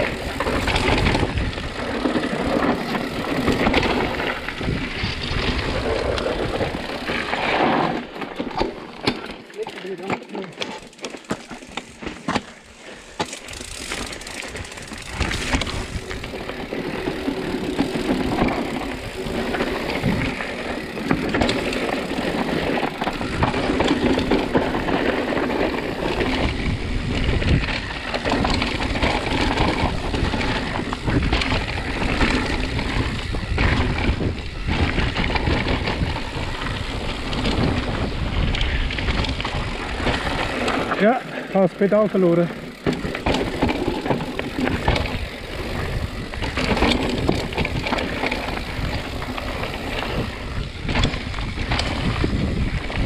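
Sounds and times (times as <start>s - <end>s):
bike rattling over bumps: 0.0s - 53.0s
tyres crunching over stones: 8.0s - 26.0s
wind on microphone: 14.4s - 20.4s, 25.8s - 40.9s, 43.3s - 53.0s.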